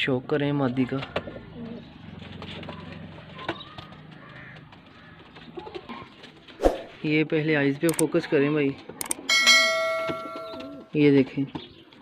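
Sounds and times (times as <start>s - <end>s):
pigeon cooing: 1.1s - 4.5s.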